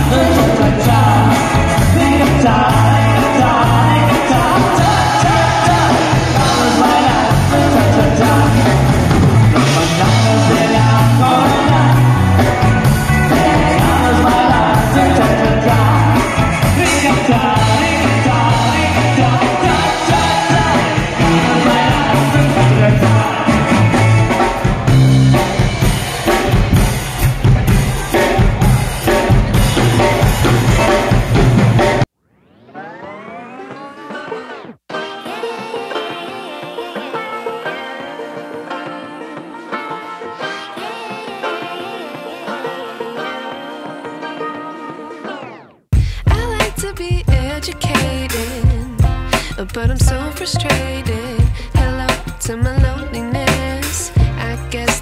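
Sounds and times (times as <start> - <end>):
person singing: 0.0 - 25.4, 34.6 - 55.0
drum kit: 0.0 - 32.1, 45.2 - 55.0
electric guitars: 0.0 - 32.1, 32.7 - 55.0
rock band playing: 0.0 - 55.0.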